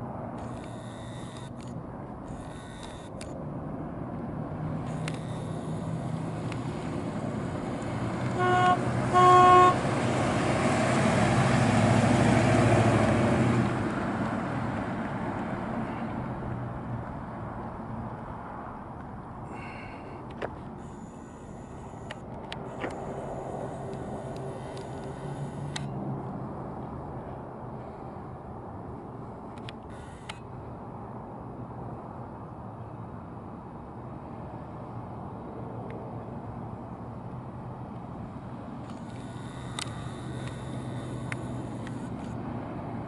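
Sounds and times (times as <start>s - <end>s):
car driving past: 4.3s - 18.8s
car horn toots: 8.3s - 9.8s.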